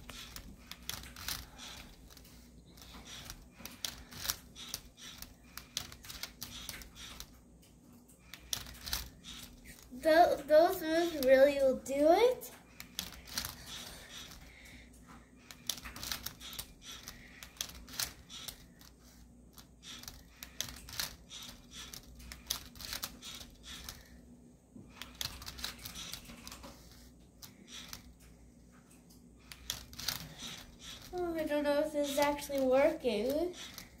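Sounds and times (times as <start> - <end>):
toy motors turning: 0.0 - 7.3, 8.1 - 24.2, 24.9 - 28.3, 29.4 - 34.0
plastic clicks and clatters: 12.7 - 19.0.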